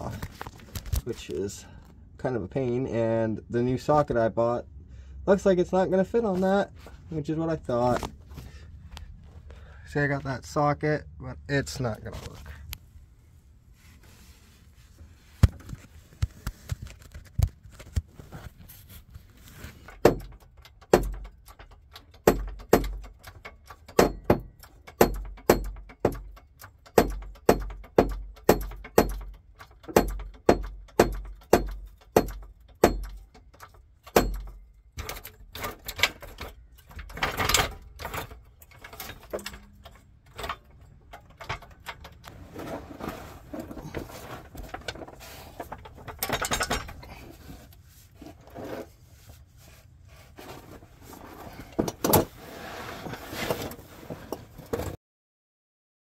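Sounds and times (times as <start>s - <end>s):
rustling scrape: 12.1s - 19.9s, 42.3s - 46.1s, 46.9s - 55.0s
hand tools knocking on metal: 20.0s - 34.6s.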